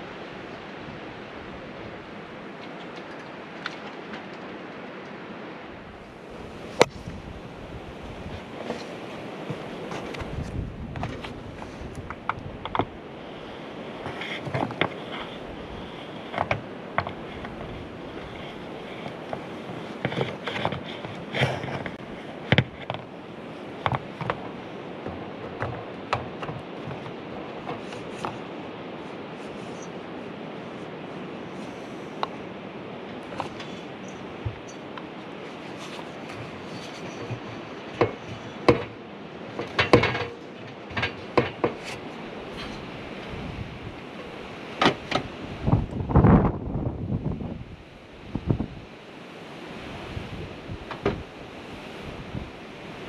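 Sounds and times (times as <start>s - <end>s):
wind hiss: 0.0s - 53.0s
knocks and taps on sheet metal: 38.0s - 39.0s.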